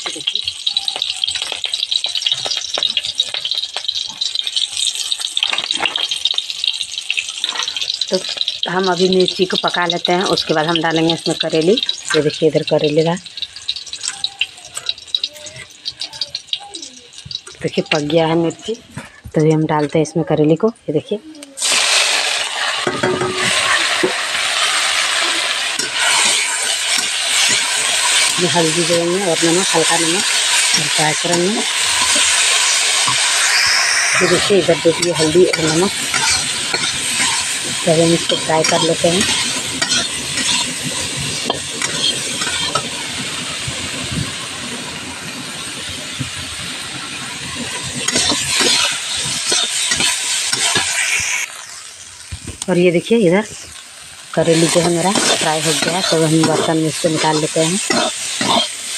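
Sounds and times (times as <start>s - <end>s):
vegetables sizzling in hot oil: 0.0s - 20.1s, 20.9s - 58.9s
spoon clinking and scraping pan: 22.7s - 24.8s, 25.6s - 43.1s, 47.5s - 51.5s, 54.4s - 58.9s.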